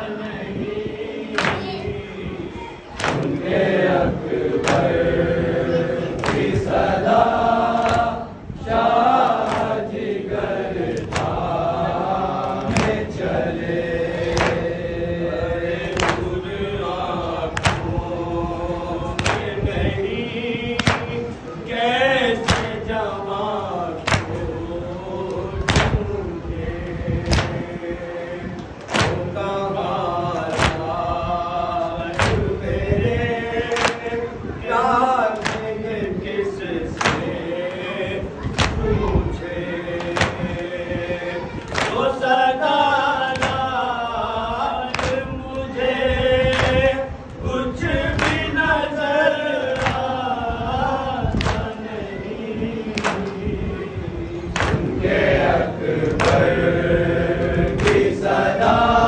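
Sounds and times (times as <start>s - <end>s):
men chanting a lament: 0.0s - 59.0s
hands slapping on chests: 1.3s - 1.8s, 3.0s - 3.4s, 4.6s - 4.9s, 6.2s - 6.6s, 7.8s - 8.1s, 9.4s - 9.8s, 10.9s - 11.4s, 12.4s - 13.2s, 14.2s - 14.7s, 15.9s - 16.4s, 17.6s - 18.0s, 19.2s - 19.6s, 20.8s - 21.2s, 22.4s - 22.8s, 24.0s - 24.4s, 25.3s - 26.0s, 27.2s - 27.6s, 28.6s - 29.3s, 30.4s - 30.9s, 32.1s - 32.5s, 33.7s - 34.1s, 35.3s - 35.7s, 37.0s - 37.4s, 38.5s - 38.9s, 40.0s - 40.7s, 41.6s - 42.1s, 43.3s - 43.7s, 44.9s - 45.3s, 46.5s - 46.8s, 48.1s - 48.5s, 49.8s - 50.1s, 51.4s - 51.8s, 52.9s - 53.4s, 54.5s - 55.0s, 56.0s - 56.6s, 57.4s - 58.2s.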